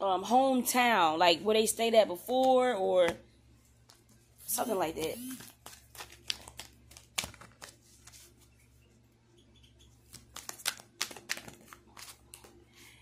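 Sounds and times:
cards clicking and rustling: 0:05.3 - 0:08.3, 0:10.0 - 0:12.6.

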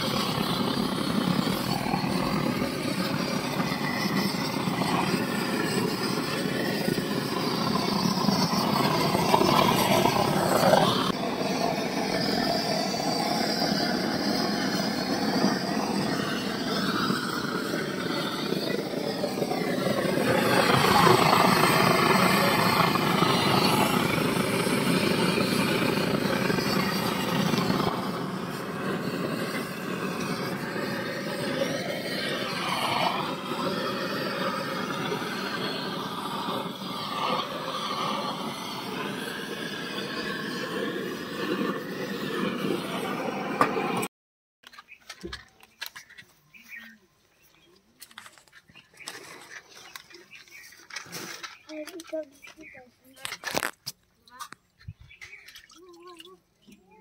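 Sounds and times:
blowtorch roaring hiss: 0:00.0 - 0:44.1.

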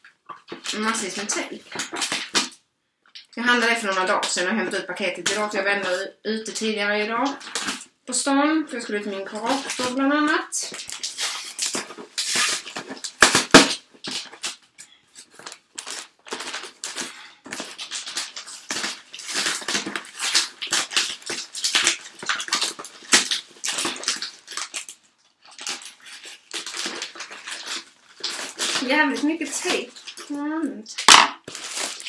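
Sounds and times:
packing tape tearing: 0:10.7 - 0:28.9, 0:31.0 - 0:32.0.

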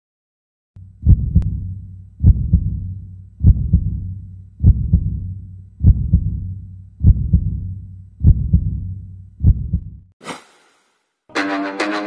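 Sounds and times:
low hum: 0:00.8 - 0:10.1
heartbeat double thump: 0:01.0 - 0:10.1.

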